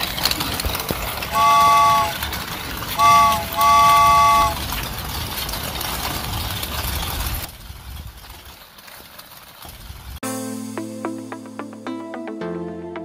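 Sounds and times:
steady background noise: 0.0 - 9.4
multi-note train horn blasts: 1.2 - 4.7.

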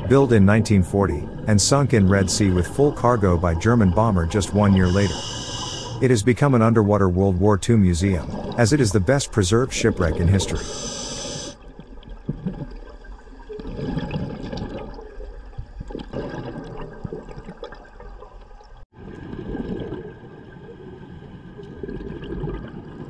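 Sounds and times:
exhaled bubbles rushing: 0.0 - 23.0
regulator breathing underwater: 4.4 - 6.2, 10.3 - 11.6.

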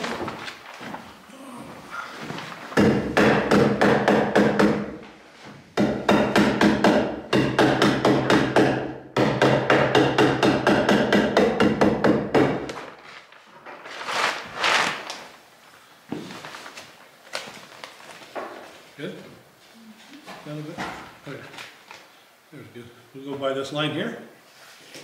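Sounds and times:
sheet rustling: 0.0 - 3.2, 12.7 - 22.2, 24.4 - 25.0
staple hammer striking wood: 5.8 - 12.7.

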